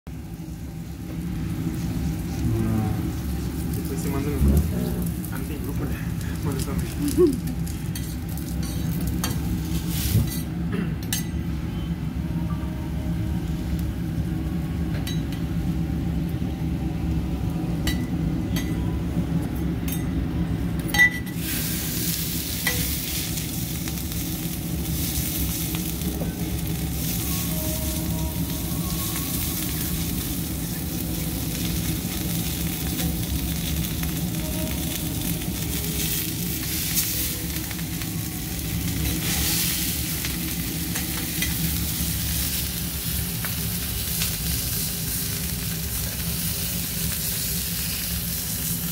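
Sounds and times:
steady low hum: 0.1s - 48.9s
beef sizzling on a griddle: 0.3s - 10.5s, 21.3s - 48.9s
cutlery clinking on steel: 10.2s - 11.4s.

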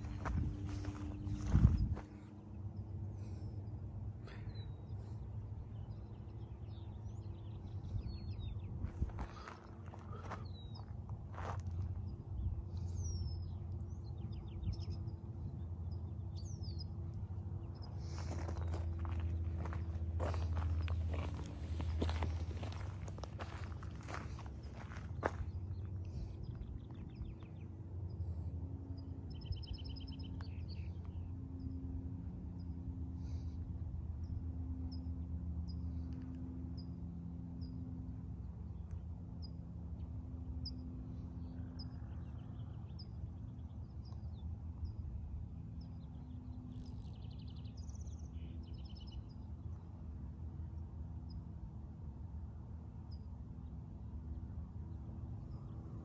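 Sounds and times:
songbirds chirping and trilling: 0.0s - 32.0s, 38.7s - 51.4s
low steady rumble: 0.0s - 56.0s.

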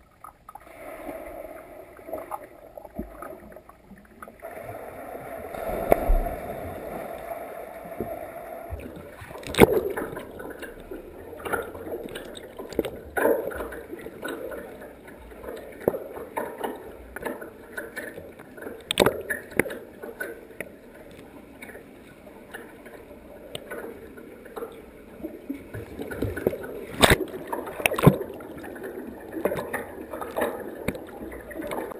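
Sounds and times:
underwater bubbly rush: 0.0s - 21.8s, 22.4s - 31.9s
underwater water noise: 0.0s - 31.9s
underwater knocks and clicks: 8.8s - 21.9s, 22.5s - 24.9s, 25.6s - 31.9s.

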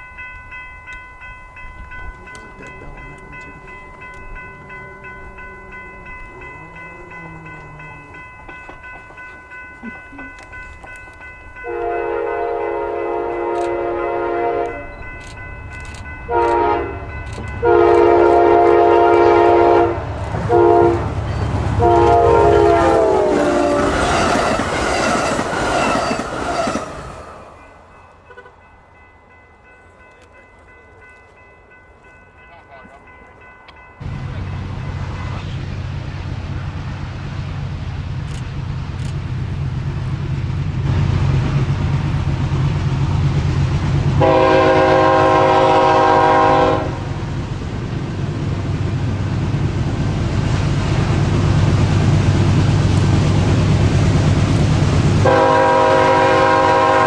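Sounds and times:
low train rumble: 0.0s - 57.0s
train wheel and rail noise: 0.0s - 57.0s
locomotive horn blasts: 11.6s - 15.0s, 16.2s - 24.0s, 28.3s - 28.6s, 44.2s - 47.2s, 55.2s - 57.0s.

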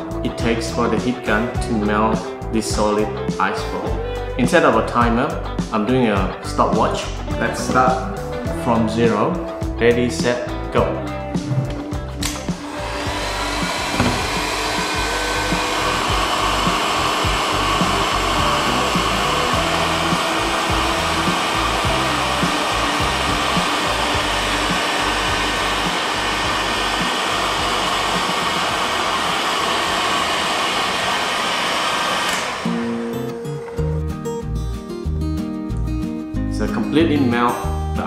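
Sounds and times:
heat gun fan rushing: 11.6s - 33.8s.

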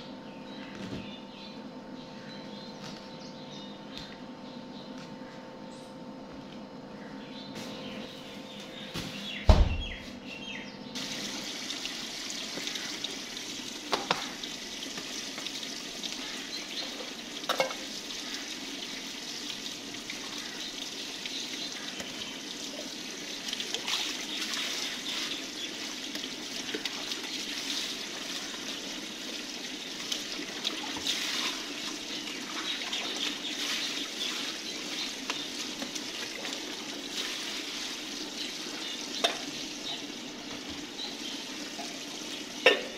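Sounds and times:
loud thump: 9.4s - 9.9s
water splashing in bowls: 11.0s - 42.9s.

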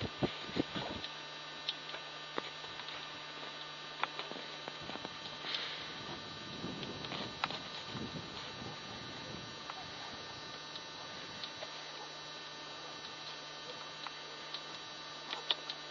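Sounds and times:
steady low hum: 0.0s - 15.9s.

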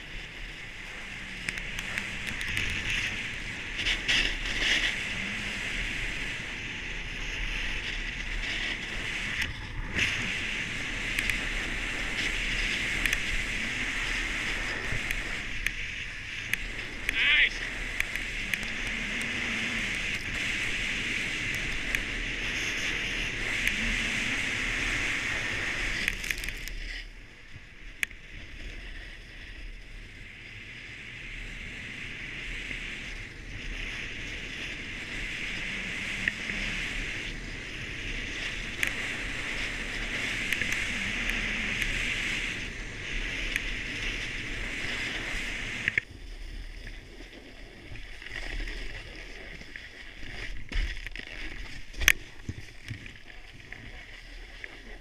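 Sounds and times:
snowboard carving over packed snow: 0.0s - 55.0s.

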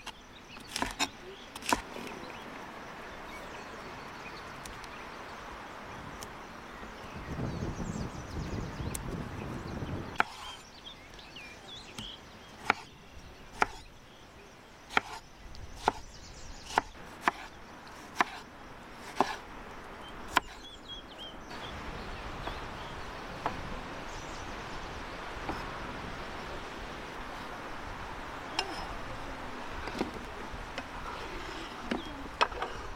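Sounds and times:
knife chopping on wooden board: 14.9s - 15.2s, 15.8s - 16.0s, 16.7s - 17.5s, 18.1s - 18.4s, 19.1s - 19.4s.

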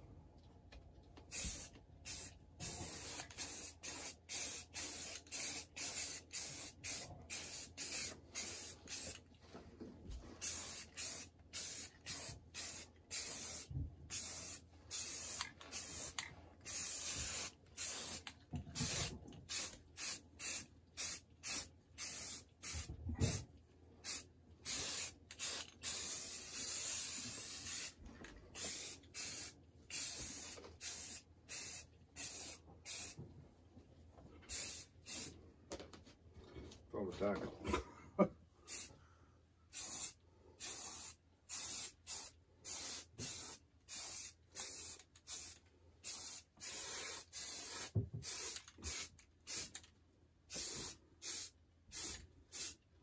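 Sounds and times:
spray paint can hissing: 1.3s - 9.2s, 10.4s - 22.8s, 24.0s - 28.0s, 28.6s - 33.2s, 34.5s - 35.3s, 39.7s - 49.8s, 50.5s - 52.8s.

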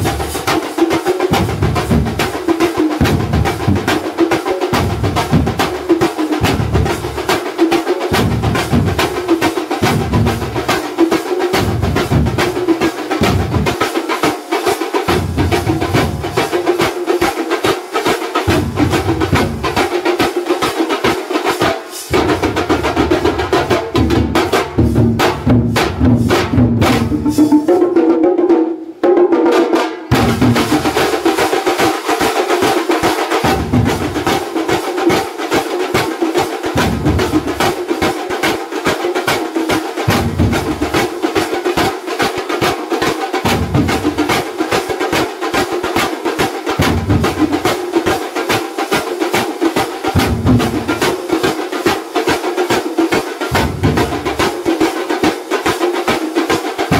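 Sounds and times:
large drums beaten fast: 0.0s - 56.9s.

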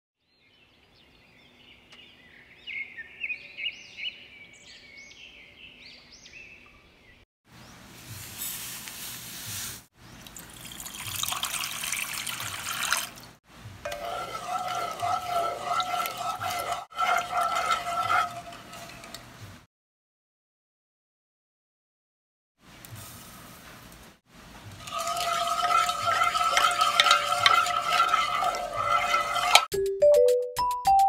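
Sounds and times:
water pouring: 10.2s - 19.3s, 24.6s - 29.7s
wooden spoon stirring liquid: 13.9s - 19.6s, 24.7s - 29.7s
powder poured into pot hissing: 24.7s - 29.7s.

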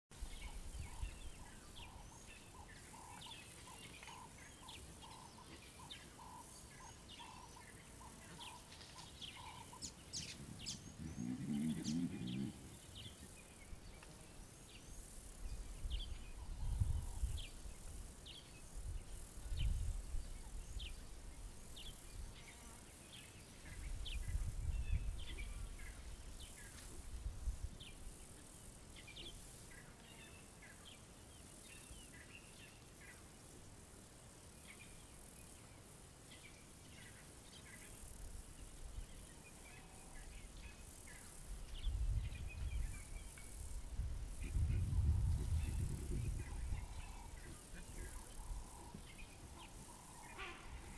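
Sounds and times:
bird chorus chirping: 0.2s - 18.7s, 44.4s - 50.9s
wind buffeting microphone: 15.5s - 17.8s, 18.8s - 20.9s, 23.8s - 25.9s, 41.6s - 49.6s.

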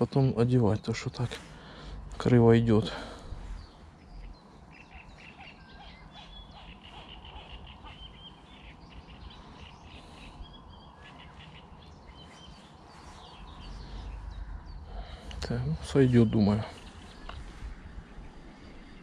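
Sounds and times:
small birds chirping: 0.0s - 19.0s
low steady rumble: 5.8s - 19.0s.

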